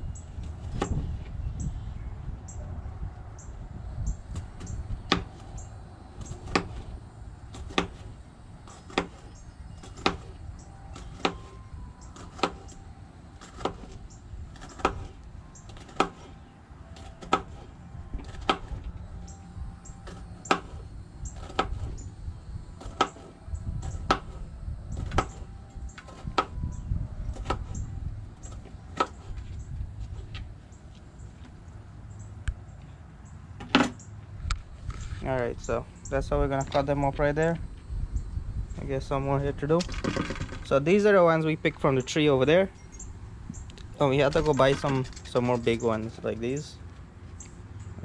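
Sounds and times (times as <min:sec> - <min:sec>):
low rumble: 0:23.4 - 0:30.7, 0:34.2 - 0:39.8.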